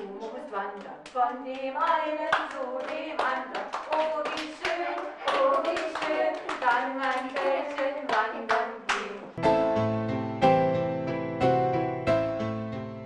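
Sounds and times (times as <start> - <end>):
children singing: 1.3 - 9.3
children clapping hands: 1.9 - 9.1.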